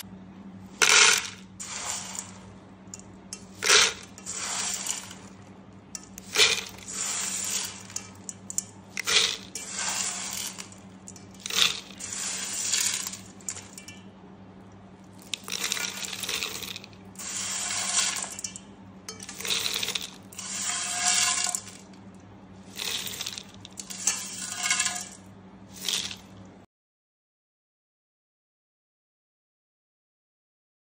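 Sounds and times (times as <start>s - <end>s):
snack pieces poured into plastic jar: 0.8s - 2.3s, 3.6s - 5.3s, 6.2s - 8.0s, 9.0s - 10.8s, 11.4s - 13.7s, 15.2s - 18.4s, 19.3s - 21.8s, 22.7s - 25.2s, 25.8s - 26.2s
hard pieces rattling against plastic: 22.8s - 25.0s.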